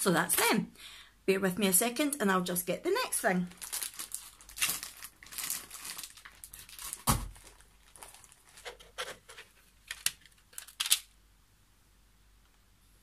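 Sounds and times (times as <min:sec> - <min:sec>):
packaging rustling and crinkling: 0:03.5 - 0:11.1.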